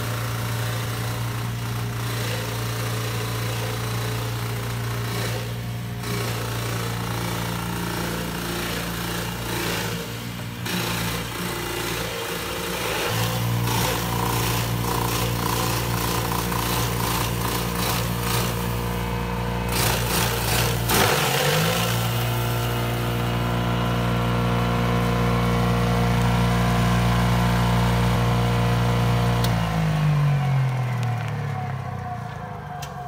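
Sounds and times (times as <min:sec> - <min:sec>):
machine chopping plant stalk: 0:10.6 - 0:18.8, 0:19.7 - 0:23.2.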